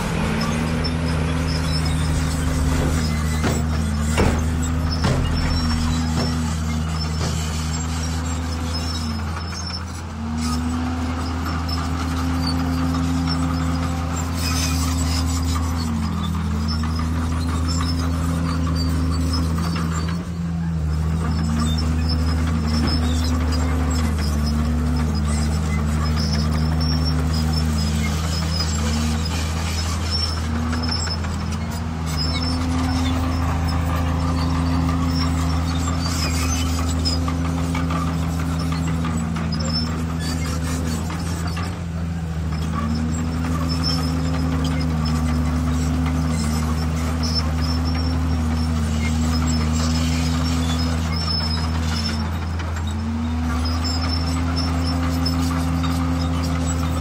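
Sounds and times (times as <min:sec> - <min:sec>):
bulldozer diesel engine under load: 0:00.0 - 0:57.0.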